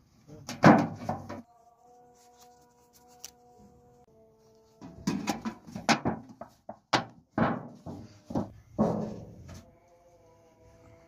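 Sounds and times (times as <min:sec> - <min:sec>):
sheet-metal tin knocking and rattling: 0:00.5 - 0:01.4, 0:05.0 - 0:09.4.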